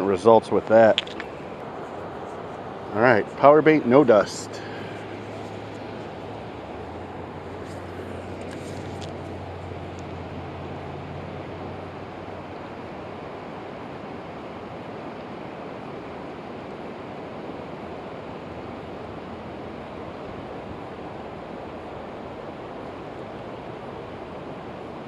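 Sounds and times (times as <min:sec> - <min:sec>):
river flowing: 0:00.0 - 0:25.0.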